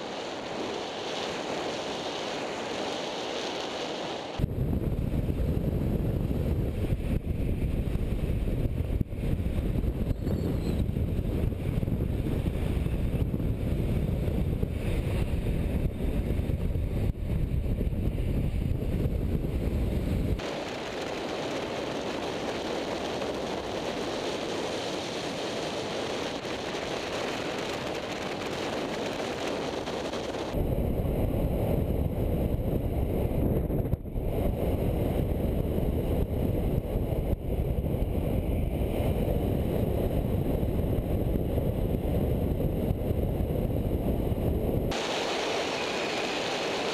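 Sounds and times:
wind rushing over microphone: 0.0s - 46.9s
skate wheels rumbling on asphalt: 10.9s - 46.9s.

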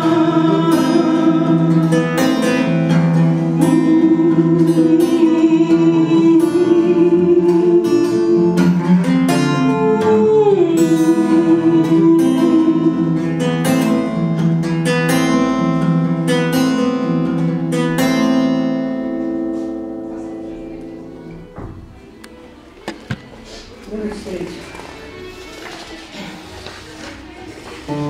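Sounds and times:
held wordless vocal: 0.0s - 2.7s, 3.5s - 13.6s
acoustic guitar strummed and picked: 0.0s - 21.9s.

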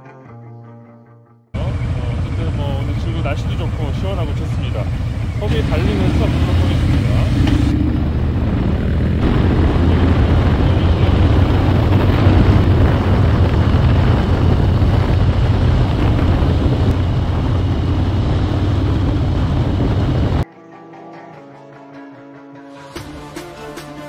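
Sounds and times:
motorcycle engine rumbling: 1.6s - 20.4s
wind rush on microphone: 1.6s - 20.4s.

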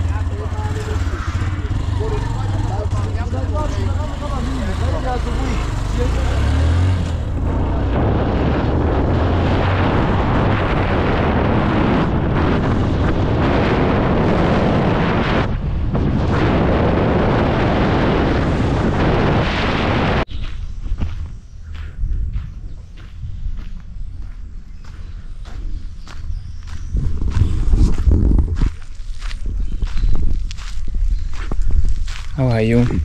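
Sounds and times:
motorcycle engine: 0.0s - 20.3s
tyres on dirt road: 0.0s - 33.0s
wind buffeting microphone: 0.0s - 33.0s.

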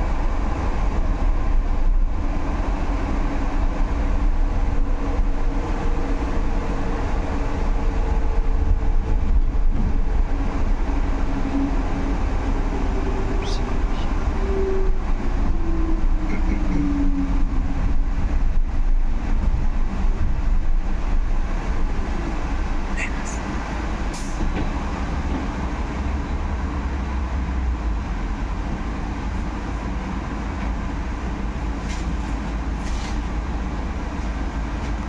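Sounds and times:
low rumble of tyres and road: 0.0s - 35.0s.

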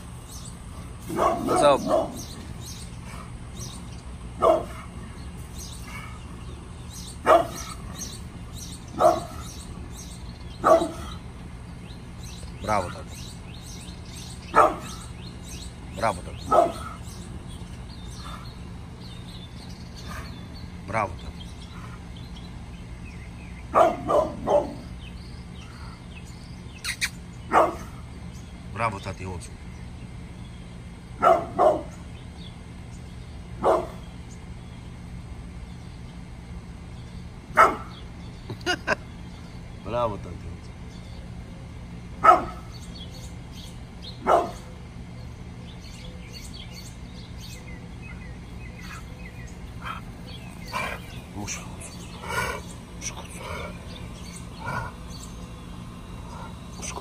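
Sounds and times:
small birds chirping faintly: 0.0s - 57.0s
dog barking: 1.0s - 2.3s, 4.4s - 4.9s, 7.2s - 7.8s, 8.9s - 9.5s, 10.6s - 11.2s, 14.5s - 15.1s, 16.5s - 17.0s, 23.7s - 24.9s, 27.5s - 28.0s, 31.2s - 32.0s, 33.6s - 34.0s, 37.5s - 37.9s, 42.2s - 42.7s, 44.2s - 44.7s.

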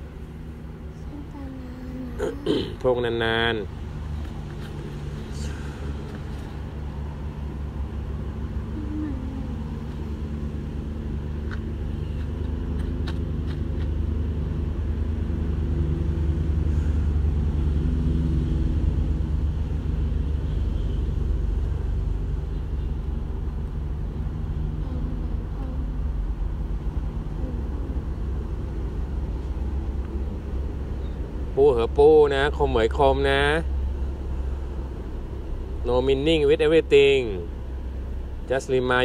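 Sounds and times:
low mechanical rumble: 0.0s - 39.0s
faint tonal hum: 8.4s - 10.9s, 24.0s - 31.4s.

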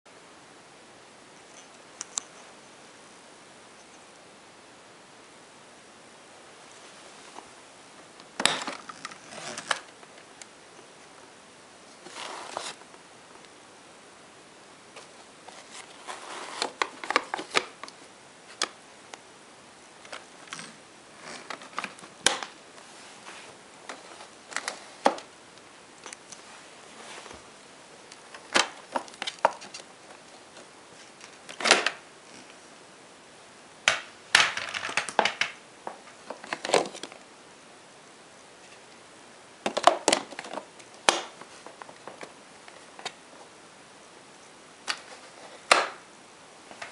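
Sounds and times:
plastic parts clicking and rattling: 8.4s - 9.9s, 33.9s - 35.6s, 39.6s - 43.2s.

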